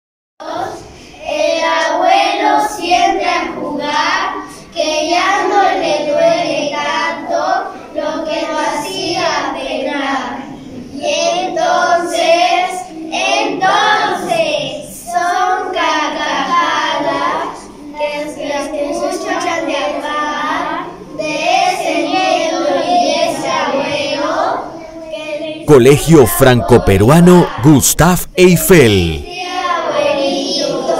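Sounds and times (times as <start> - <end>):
children reciting in unison: 0.4 - 30.9.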